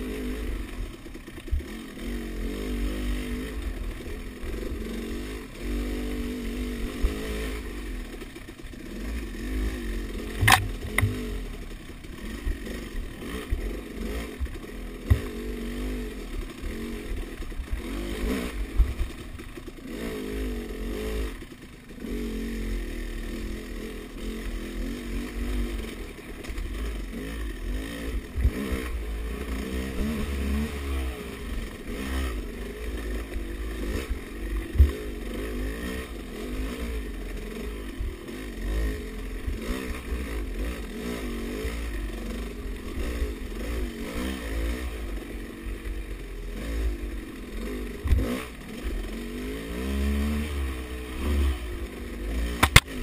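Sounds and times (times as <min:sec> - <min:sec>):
dirt bike engine revving: 0:00.0 - 0:53.0
sharp knocks: 0:10.4 - 0:11.3, 0:15.0 - 0:15.3, 0:52.6 - 0:52.9.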